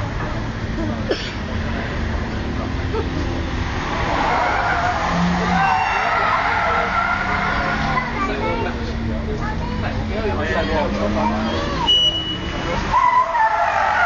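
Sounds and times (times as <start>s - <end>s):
car engine hum: 0.0s - 14.0s
car tyres squealing: 3.0s - 8.8s, 10.4s - 14.0s.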